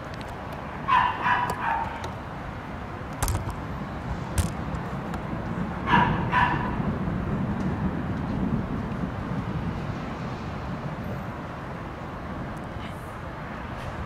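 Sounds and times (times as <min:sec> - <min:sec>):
dog barking: 0:00.9 - 0:02.0, 0:05.9 - 0:06.8
sharp clicks: 0:03.1 - 0:03.6, 0:04.4 - 0:05.2.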